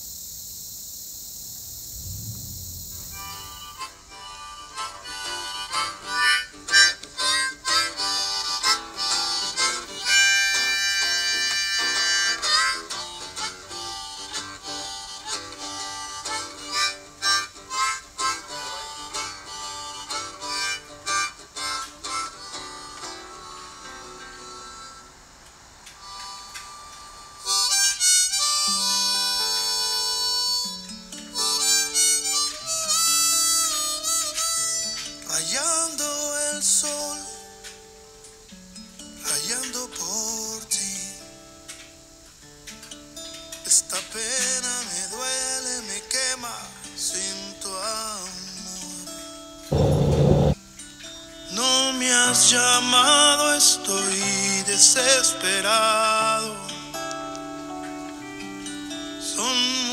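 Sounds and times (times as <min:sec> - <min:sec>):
harmonica melody: 0:03.2 - 0:25.2, 0:26.0 - 0:37.1, 0:49.7 - 0:50.6.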